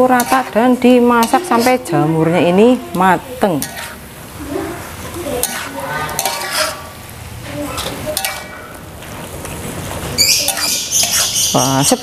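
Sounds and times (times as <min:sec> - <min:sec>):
metal spatula scraping a wok: 0:00.0 - 0:12.0.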